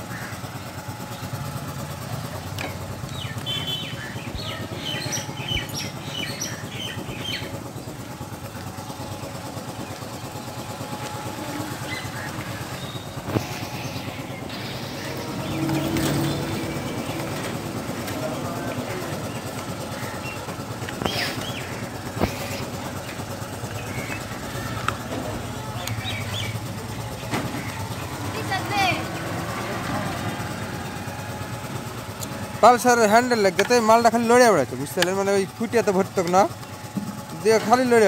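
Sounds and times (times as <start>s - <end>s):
vehicle engine running: 0.0s - 38.0s.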